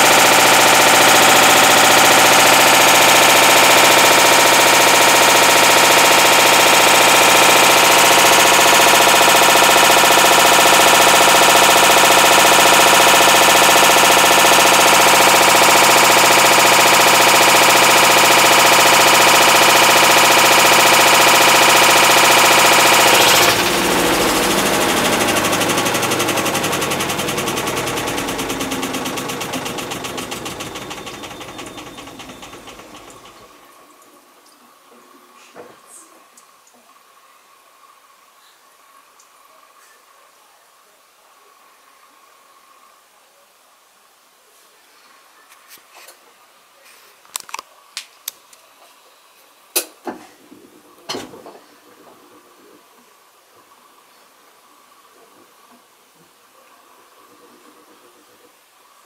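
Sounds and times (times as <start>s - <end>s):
washing machine grinding rattle: 0.0s - 33.5s.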